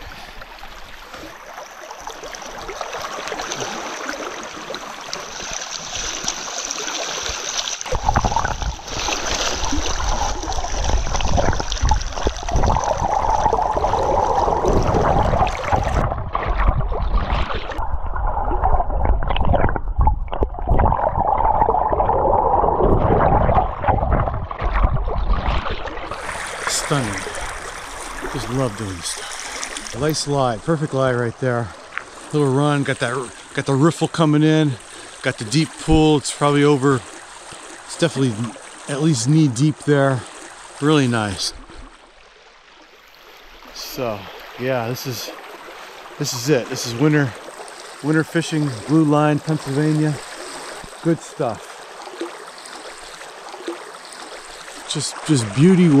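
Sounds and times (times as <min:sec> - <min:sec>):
stream water rushing over rocks: 0:00.0 - 0:16.1, 0:26.0 - 0:41.6, 0:42.9 - 0:56.0
muffled underwater gurgling: 0:07.9 - 0:30.7.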